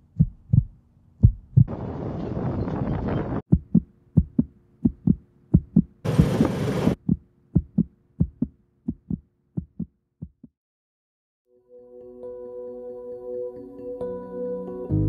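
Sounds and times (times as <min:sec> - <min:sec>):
heartbeat thumps: 0:00.0 - 0:01.7, 0:03.5 - 0:10.5.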